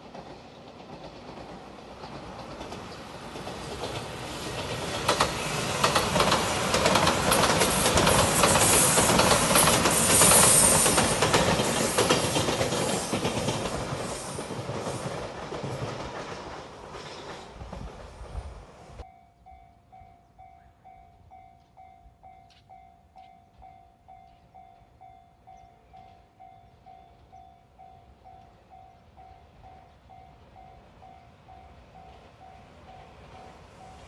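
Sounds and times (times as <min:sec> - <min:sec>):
wheels clattering over rail joints: 0:00.0 - 0:18.2
electric train passing: 0:00.0 - 0:34.0.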